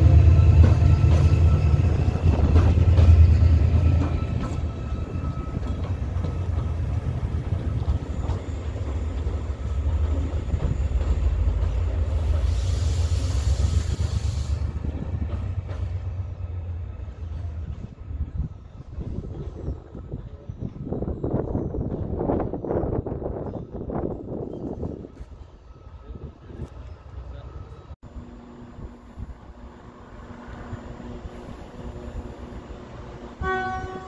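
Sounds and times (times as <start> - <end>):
diesel locomotive engine rumble: 0.0 - 34.0
air hiss: 12.2 - 14.8.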